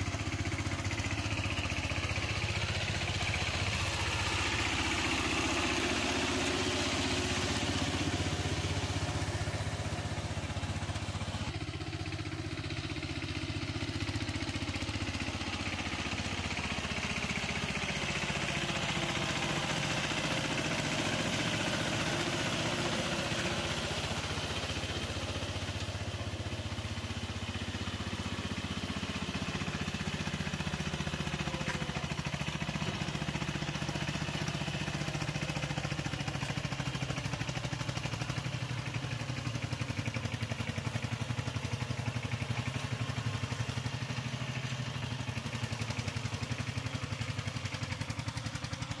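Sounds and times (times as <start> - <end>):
diesel engine chugging: 0.0 - 49.0.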